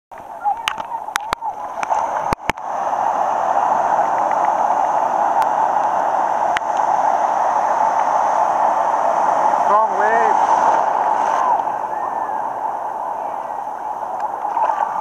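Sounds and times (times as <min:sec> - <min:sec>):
surf breaking: 0:00.2 - 0:15.0.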